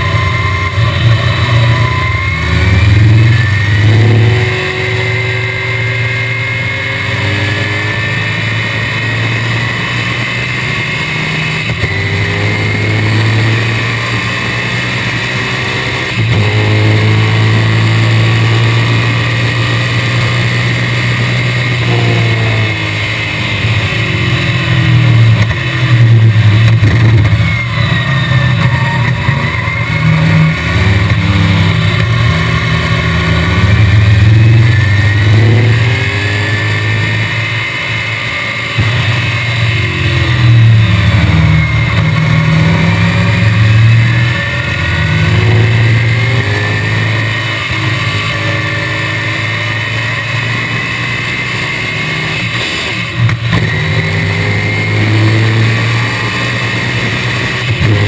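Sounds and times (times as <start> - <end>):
race car engine running hard: 0.0 - 58.0.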